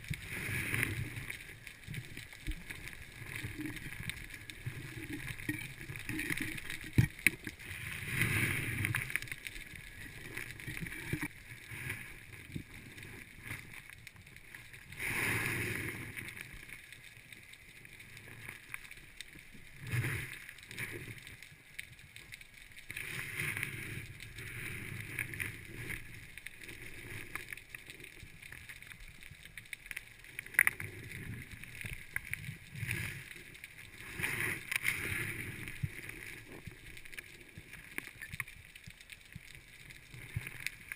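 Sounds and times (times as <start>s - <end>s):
underwater bubbling rush: 0.0s - 40.9s
underwater clicks and knocks: 0.7s - 7.6s, 8.8s - 11.4s.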